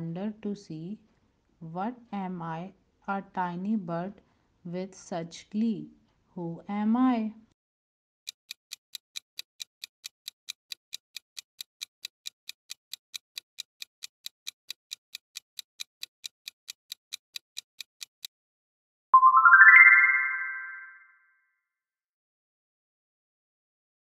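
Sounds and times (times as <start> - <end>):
clock-like ticking: 8.2 - 18.4
rising bright chime: 19.2 - 21.2.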